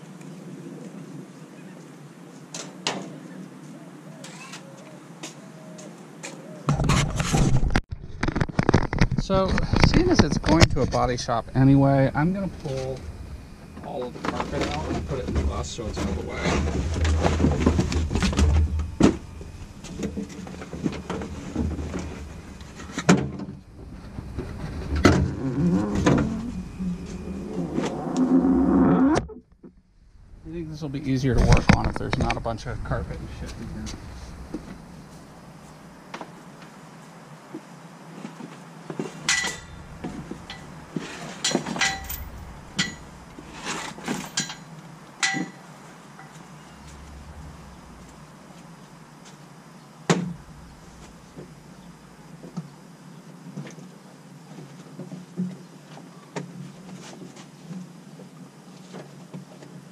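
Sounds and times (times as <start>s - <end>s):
metal tools clanking: 39.3s - 45.6s.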